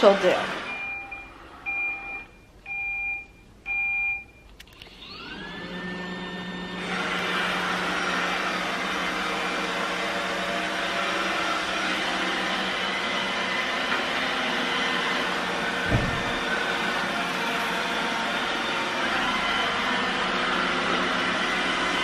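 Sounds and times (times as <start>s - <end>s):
robot vacuum beeps: 0.4s - 5.6s
robot vacuum motor whine: 4.7s - 22.0s.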